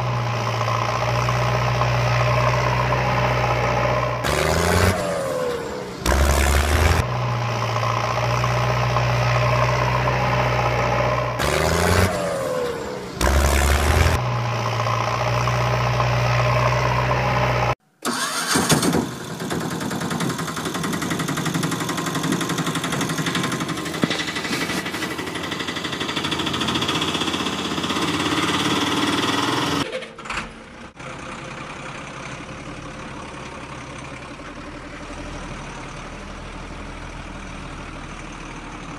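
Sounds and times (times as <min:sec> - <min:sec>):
engine running: 0:00.0 - 0:38.9
engine cranking and starting: 0:18.0 - 0:30.7.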